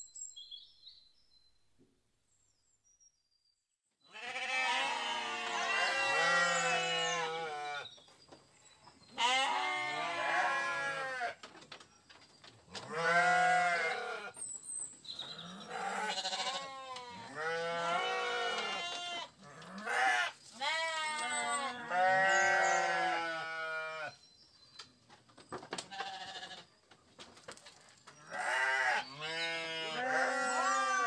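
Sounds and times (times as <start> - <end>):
sheep bleating: 4.1 - 7.8, 9.2 - 11.4, 12.9 - 14.3, 15.7 - 24.1, 26.0 - 26.6, 28.2 - 31.0.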